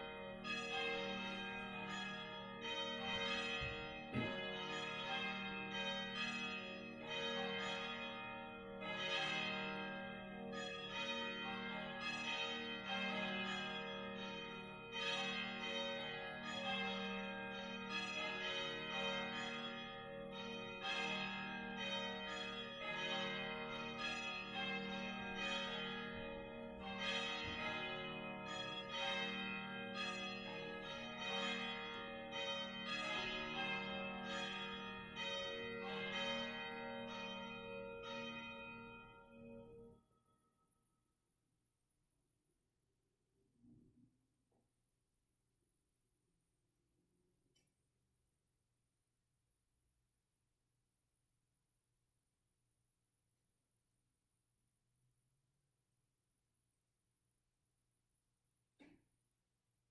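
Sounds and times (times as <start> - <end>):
church bells ringing: 0.0 - 40.0.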